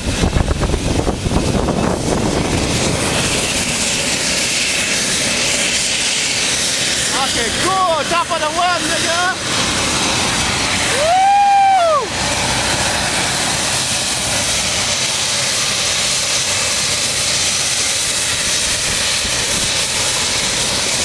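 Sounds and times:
helicopter running: 0:00.0 - 0:21.0
man yelling: 0:10.9 - 0:12.1.

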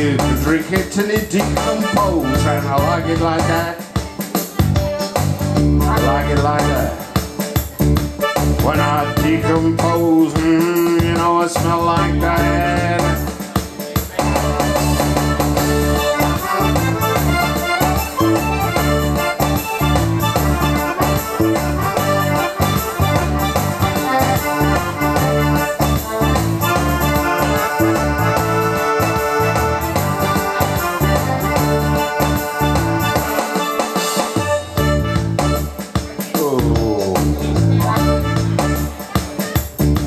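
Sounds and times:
bass line and beat: 0:00.0 - 0:40.0
electronic keyboard playing: 0:12.2 - 0:36.1.

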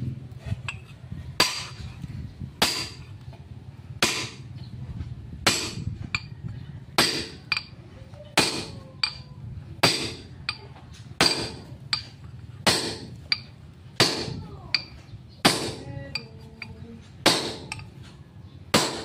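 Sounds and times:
hammer striking steel: 0:01.4 - 0:01.8, 0:05.4 - 0:06.3, 0:07.0 - 0:07.7, 0:08.4 - 0:09.2, 0:09.8 - 0:17.9.

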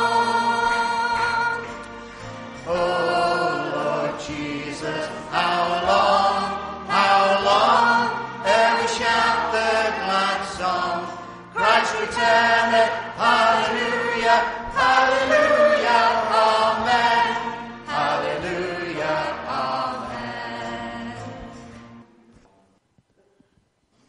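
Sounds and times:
choral chanting: 0:02.6 - 0:21.6.

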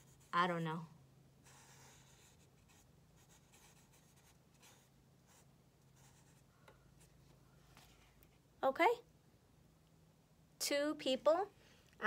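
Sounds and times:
marker scratching on paper: 0:01.4 - 0:06.4.

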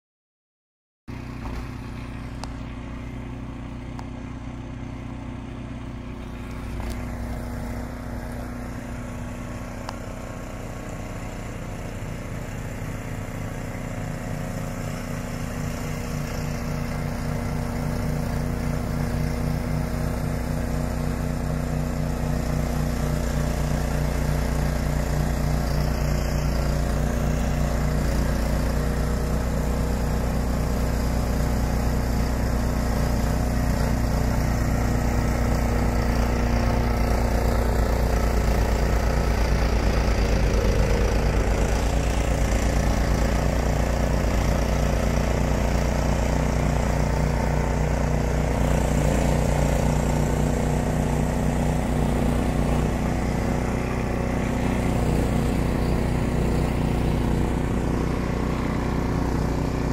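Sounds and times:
snowblower engine running: 0:01.1 - 0:59.9.

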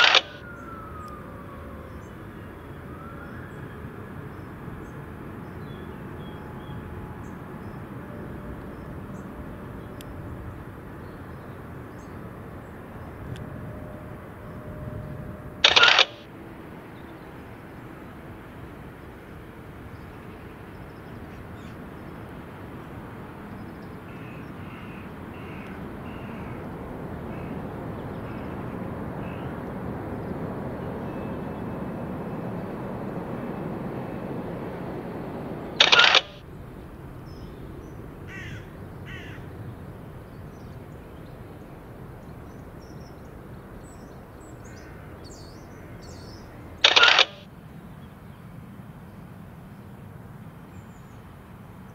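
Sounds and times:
loud short snap: 0:00.0 - 0:00.4, 0:15.6 - 0:16.2, 0:35.8 - 0:36.4, 0:46.8 - 0:47.4
distant crows cawing: 0:00.0 - 0:04.5, 0:23.6 - 0:29.6, 0:35.8 - 0:36.4, 0:38.2 - 0:39.6, 0:43.9 - 0:47.5.

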